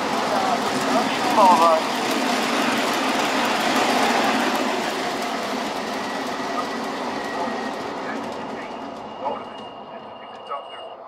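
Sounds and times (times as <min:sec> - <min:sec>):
model train rumbling on rails: 0:00.0 - 0:11.0.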